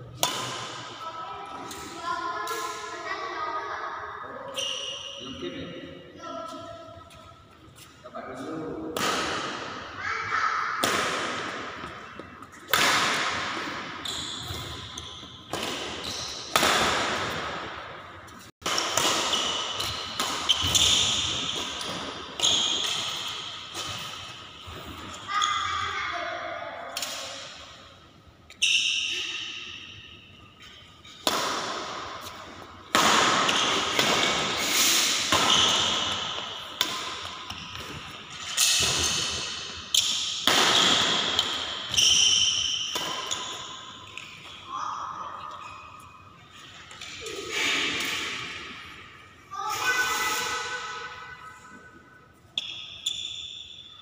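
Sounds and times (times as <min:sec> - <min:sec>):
rackets smacking shuttlecock: 0:00.2 - 0:01.0, 0:10.8 - 0:24.4, 0:31.0 - 0:44.7.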